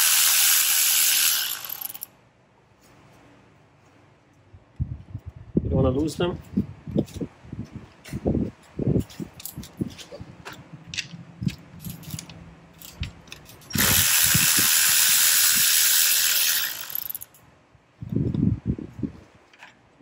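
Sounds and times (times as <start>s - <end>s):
cordless electric ratchet running: 0.0s - 2.1s, 13.6s - 17.4s
tools clicking and knocking: 9.3s - 14.0s, 16.3s - 17.4s.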